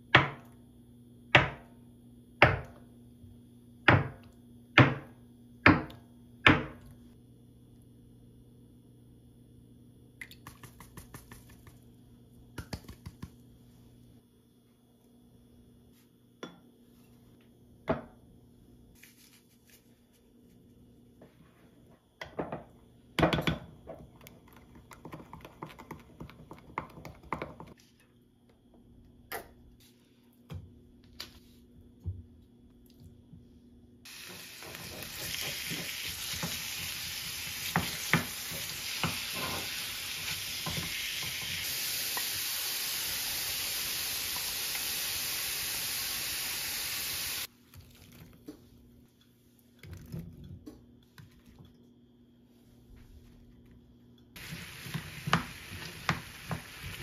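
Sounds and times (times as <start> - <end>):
meat sizzling in a pan: 34.1 - 47.5, 54.4 - 57.0.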